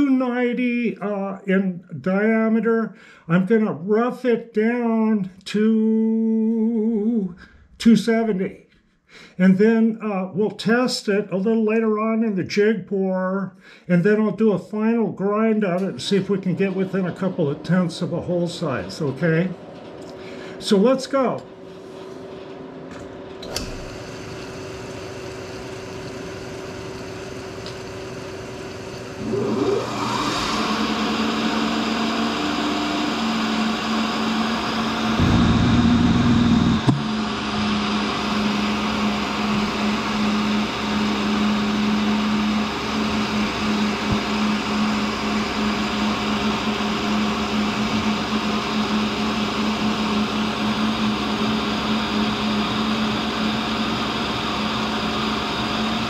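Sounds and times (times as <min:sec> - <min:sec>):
grinder motor humming: 0:22.3 - 0:56.0.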